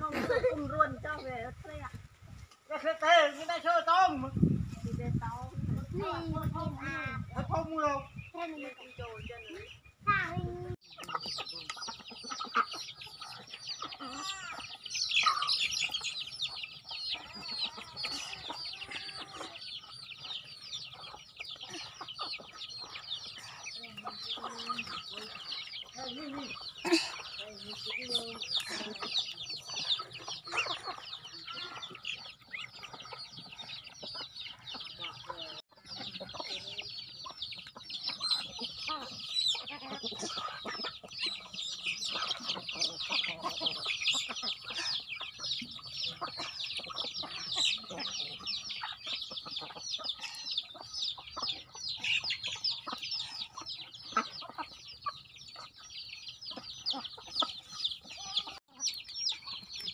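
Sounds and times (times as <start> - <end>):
chickens clucking and peeping: 0.0 - 59.9.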